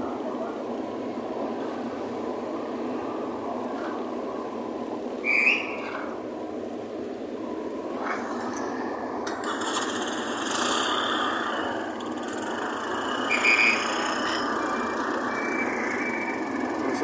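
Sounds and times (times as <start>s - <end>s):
diesel engine running: 6.9s - 17.0s.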